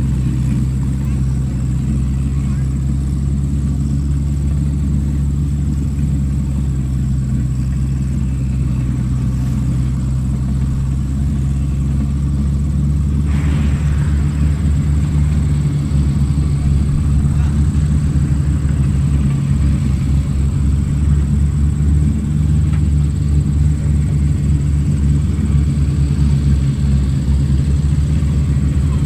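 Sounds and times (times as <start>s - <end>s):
backhoe diesel engine running: 0.0s - 29.0s
scraping noise: 13.2s - 18.0s.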